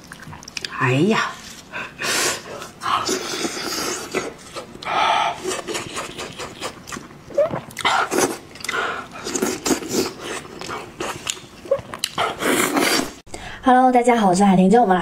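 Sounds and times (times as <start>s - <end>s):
person chewing with wet smacking: 0.0s - 1.7s, 2.6s - 13.1s
breathing: 13.3s - 13.7s.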